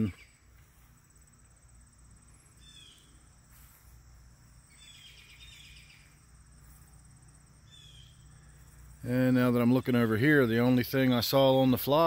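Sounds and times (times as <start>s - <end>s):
bird chirps: 0.0s - 0.9s, 2.2s - 6.9s, 7.6s - 9.0s
high-pitched insect trill: 0.0s - 12.0s.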